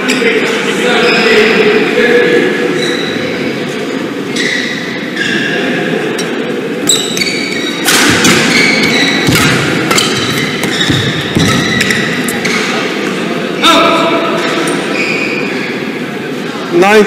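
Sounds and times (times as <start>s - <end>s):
shoes squeaking on court: 4.3s - 5.8s, 6.8s - 13.2s, 14.4s - 15.7s
racket striking shuttlecock: 7.8s - 12.5s.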